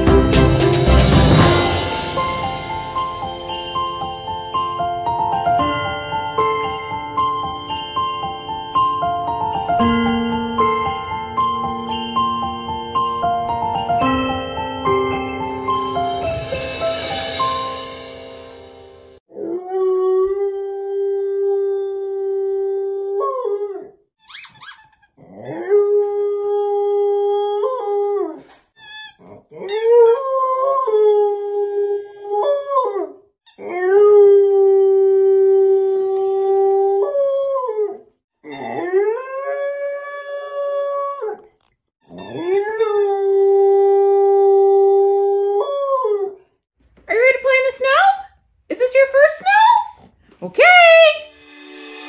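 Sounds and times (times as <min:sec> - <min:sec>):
young dog howling: 0:29.5 - 0:41.5.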